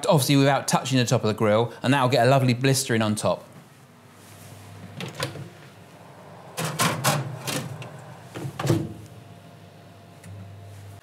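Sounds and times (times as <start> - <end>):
oven door shutting: 4.9 - 9.1.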